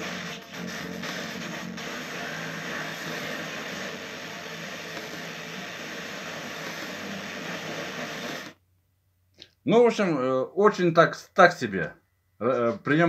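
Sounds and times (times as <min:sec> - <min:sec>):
radio static hiss: 0:00.0 - 0:08.6.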